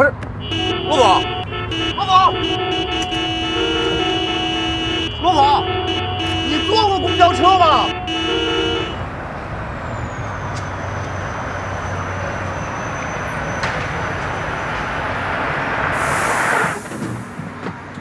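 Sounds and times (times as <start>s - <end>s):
bus road and tyre noise: 0.0s - 18.0s
air brake hiss: 15.9s - 17.4s.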